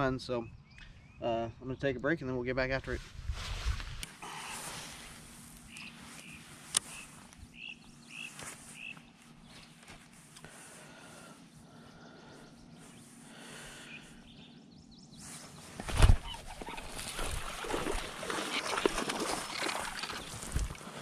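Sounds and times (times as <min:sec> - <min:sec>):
faint bird calls: 0:04.2 - 0:21.0.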